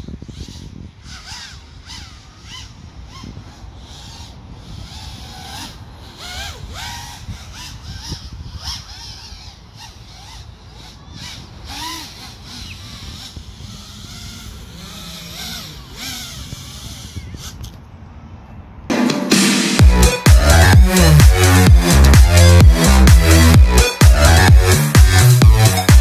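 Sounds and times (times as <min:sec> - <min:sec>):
drone motors whining: 0:00.0 - 0:18.0, 0:19.5 - 0:26.0
wind rumble on microphone: 0:00.0 - 0:18.9.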